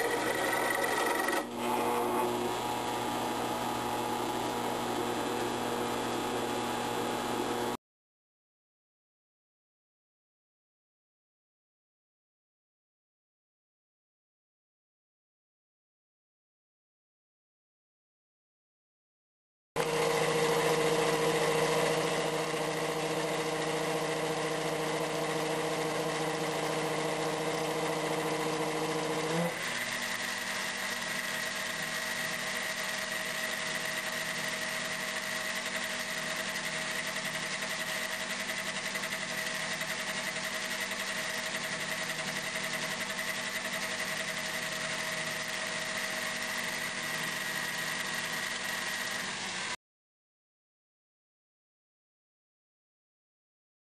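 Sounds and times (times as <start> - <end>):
lathe motor hum and whine: 0.0 - 7.8, 19.8 - 49.8.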